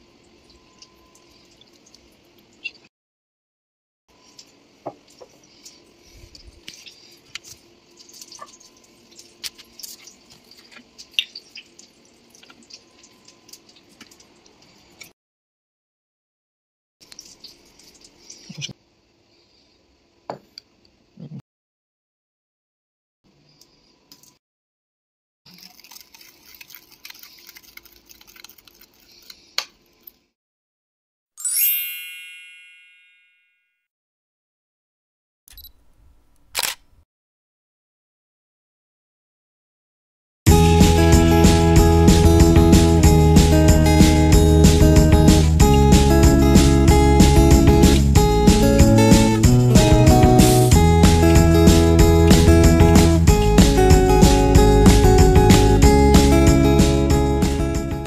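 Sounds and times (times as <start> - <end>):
liquid dripping and pouring: 0.2 - 2.7, 6.5 - 15.1, 17.0 - 18.6, 25.5 - 29.0
bright chime ringing: 31.4 - 33.7.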